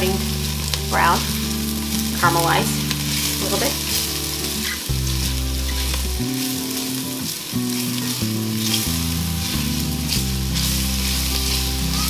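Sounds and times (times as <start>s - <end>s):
low background music: 0.0s - 12.0s
onion and garlic sizzling in oil: 0.0s - 12.0s
spatula stirring: 2.8s - 12.0s.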